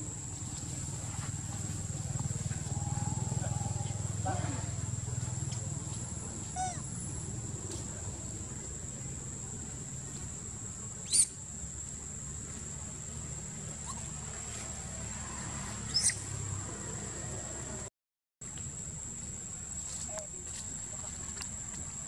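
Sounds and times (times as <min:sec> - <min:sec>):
monkey squealing: 0:06.5 - 0:06.9, 0:11.1 - 0:11.3, 0:13.8 - 0:14.1, 0:15.9 - 0:16.3.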